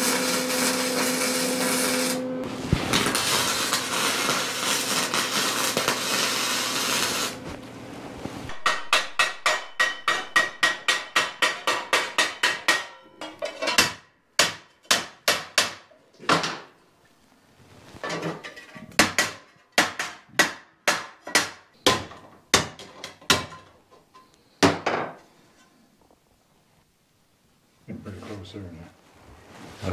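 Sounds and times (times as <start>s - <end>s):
welding arc crackling: 0.0s - 7.4s
hammer striking steel: 8.5s - 15.8s.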